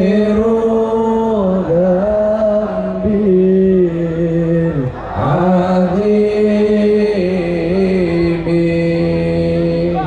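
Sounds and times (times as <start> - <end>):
man chanting long held notes: 3.0 - 10.0.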